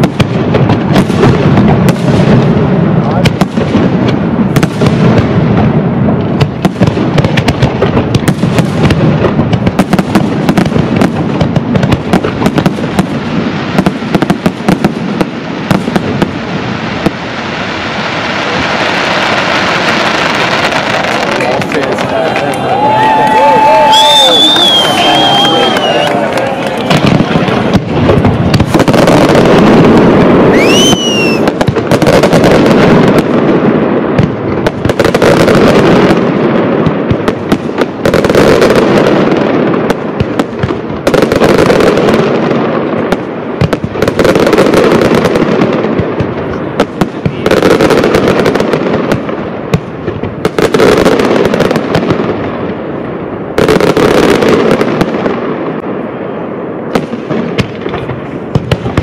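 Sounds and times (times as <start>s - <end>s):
firework bursts and crackle: 0.0s - 59.0s
rising firework whistle: 17.8s - 32.8s.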